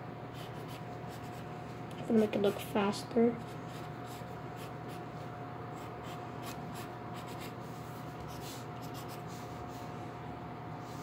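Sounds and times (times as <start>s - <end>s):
faint background hum: 0.0s - 11.0s
pencil scratching on paper: 0.3s - 1.5s, 5.8s - 7.6s, 8.2s - 9.5s.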